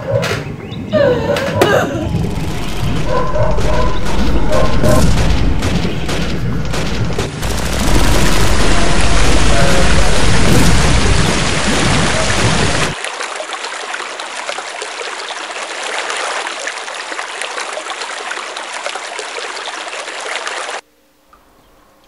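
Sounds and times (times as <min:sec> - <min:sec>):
deep rushing noise: 0:02.1 - 0:13.0.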